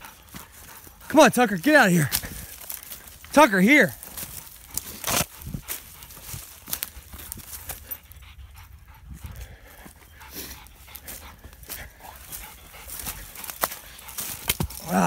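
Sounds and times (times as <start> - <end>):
footsteps through dry leaves: 1.9 - 8.2, 9.9 - 15.0.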